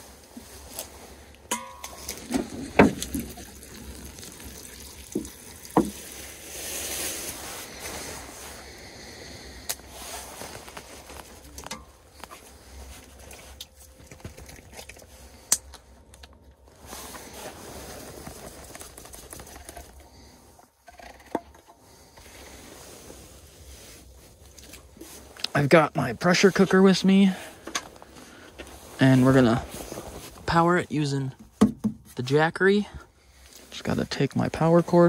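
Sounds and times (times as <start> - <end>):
plastic rustling: 1.8 - 21.3.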